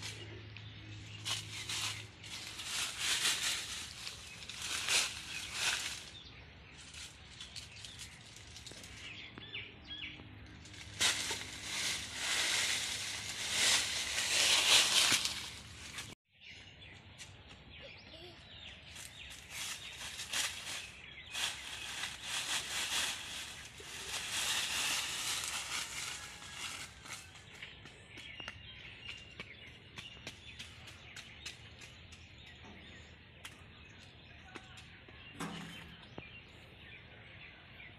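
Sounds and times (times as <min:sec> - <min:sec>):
dry leaves crunching: 0:00.0 - 0:09.5, 0:10.5 - 0:16.2, 0:18.8 - 0:27.6
faint birds chirping: 0:00.0 - 0:37.9.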